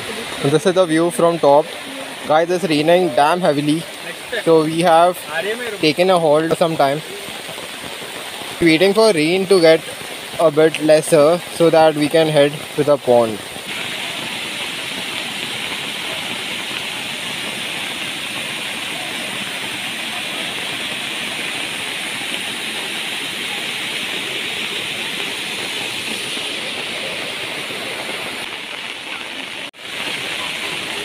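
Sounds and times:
heavy rain: 0.0 - 31.0
stream cascading over rocks: 0.0 - 31.0.

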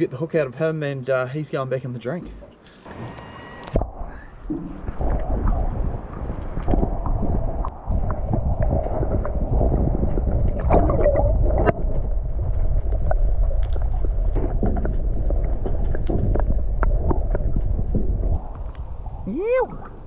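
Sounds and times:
underwater water gurgling: 3.7 - 20.0
bubbling pops and clicks: 4.5 - 18.9.

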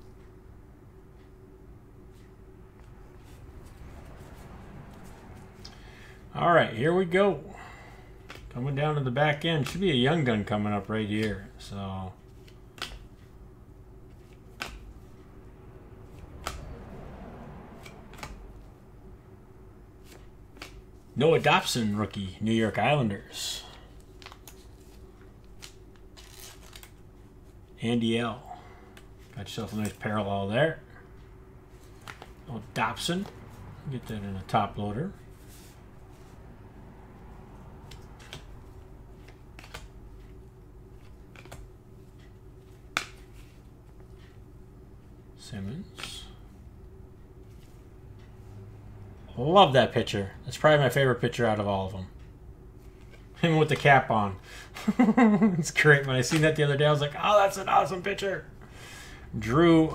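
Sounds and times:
faint steady hum: 0.0 - 59.9
cards sliding rustle: 2.1 - 6.1, 8.2 - 8.5, 12.2 - 13.3, 14.1 - 15.2, 17.8 - 18.7, 20.0 - 22.0, 23.7 - 27.6, 31.7 - 33.5, 35.3 - 36.4, 37.8 - 44.4
cards snapping off stack: 12.4 - 13.1, 14.5 - 14.9, 16.4 - 16.7, 17.8 - 18.4, 20.1 - 20.8, 37.8 - 38.5, 39.2 - 39.9, 41.3 - 41.6.

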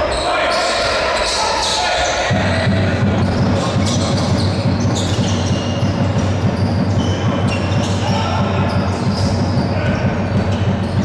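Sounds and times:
sneakers squeaking: 0.0 - 11.0
basketball bouncing on wooden court: 2.3 - 11.0.

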